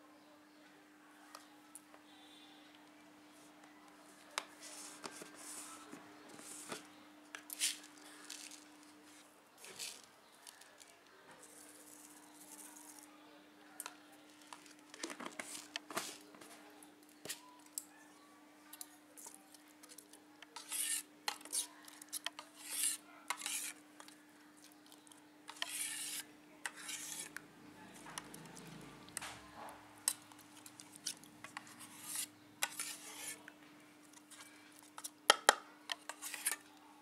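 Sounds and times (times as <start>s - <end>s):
spoon scraping steel bowl: 20.6s - 23.8s, 25.5s - 27.4s, 30.1s - 33.4s, 35.9s - 36.6s.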